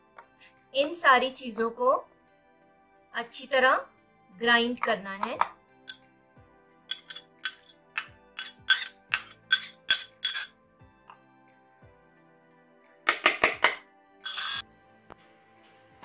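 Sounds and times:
quiet background music: 0:00.0 - 0:16.0
spoon clinking against ceramic bowl: 0:06.9 - 0:10.6, 0:14.2 - 0:14.6.

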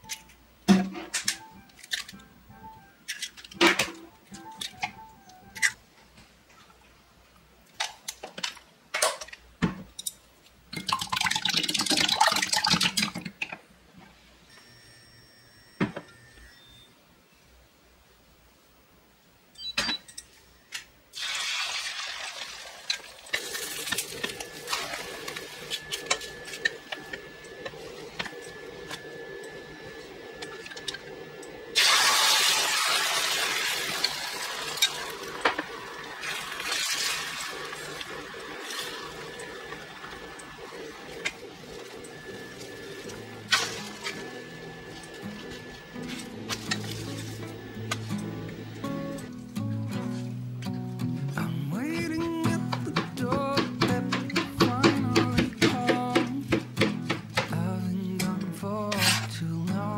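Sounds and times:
oil sizzling in a frying pan: 0:21.2 - 0:25.3, 0:31.8 - 0:39.2
egg sizzling loudly: 0:21.2 - 0:26.7, 0:31.8 - 0:45.6.

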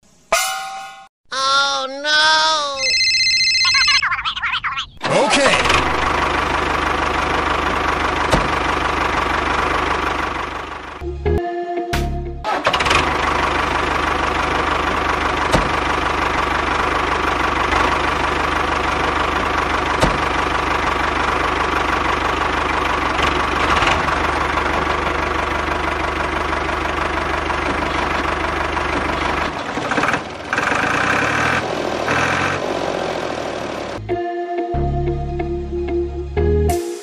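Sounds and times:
tractor engine running: 0:05.0 - 0:11.4, 0:12.4 - 0:34.1.

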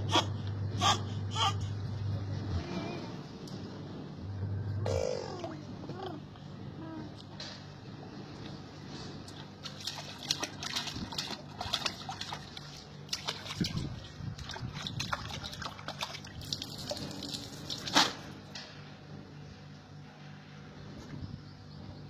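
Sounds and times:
water splashing in steel basin: 0:09.6 - 0:18.2.

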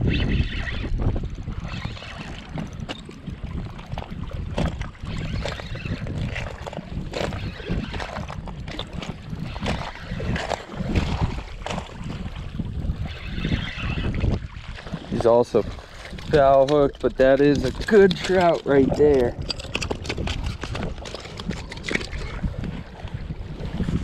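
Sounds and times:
fishing reel reeling in: 0:00.0 - 0:04.0, 0:04.7 - 0:14.9
wind buffeting microphone: 0:00.0 - 0:24.0.

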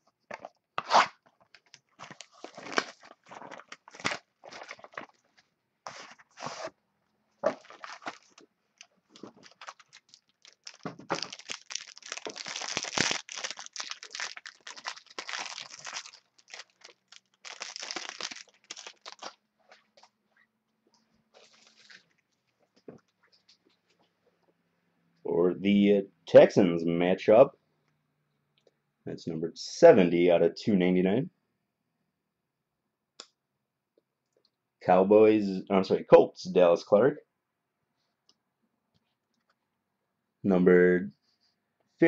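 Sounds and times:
plastic wrapping crinkling and tearing: 0:00.4 - 0:06.3, 0:07.5 - 0:19.8, 0:21.4 - 0:22.4.

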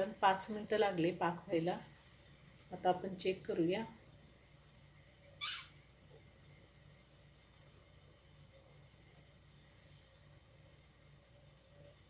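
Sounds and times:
syrup boiling in a pan: 0:00.0 - 0:12.0.

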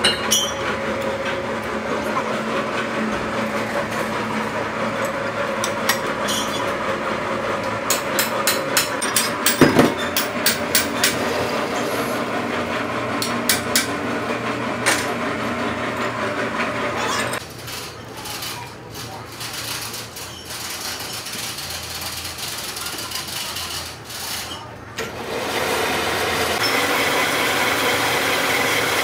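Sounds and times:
lathe motor and gear hum: 0:00.0 - 0:17.6, 0:23.8 - 0:29.0.

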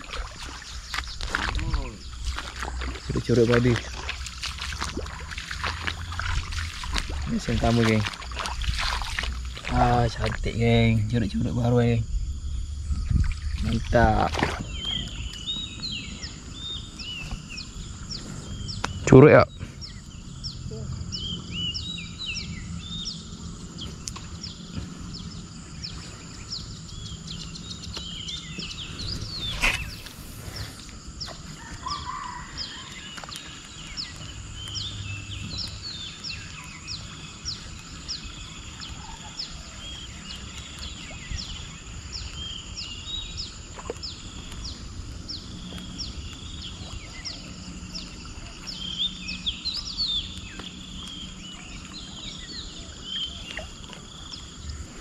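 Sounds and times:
steady outdoor hiss: 0:00.0 - 0:55.0
bird chirps: 0:13.4 - 0:54.7.

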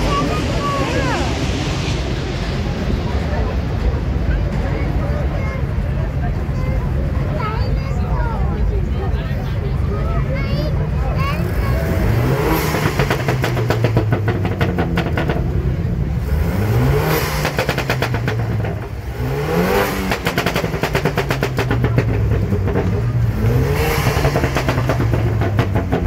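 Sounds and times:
exhaust popping: 0:11.1 - 0:26.0
car engine revving hard: 0:11.2 - 0:26.0.

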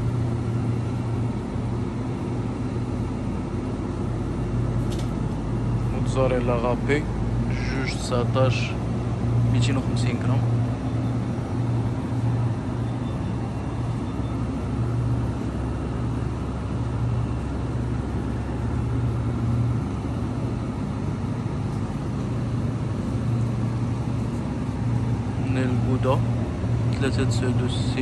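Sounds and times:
low droning refrigeration hum: 0:00.0 - 0:28.0.

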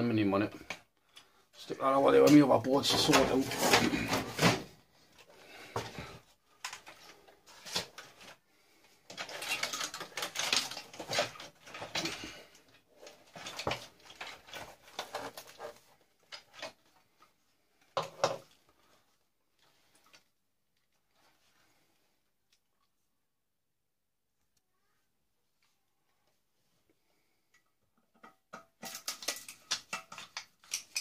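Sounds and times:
metal and plastic scraping: 0:02.2 - 0:08.4, 0:09.1 - 0:16.8
clicking and clattering parts: 0:28.2 - 0:31.0.

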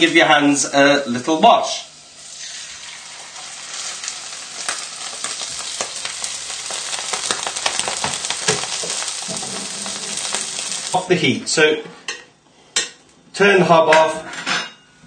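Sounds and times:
fish sizzling in frying pan: 0:01.9 - 0:11.0.

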